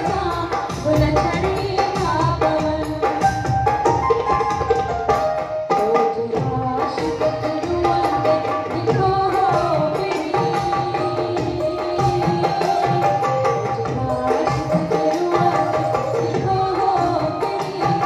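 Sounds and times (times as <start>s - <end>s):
hand drums rhythm: 0.0s - 18.0s
woman singing into a microphone: 0.0s - 18.0s.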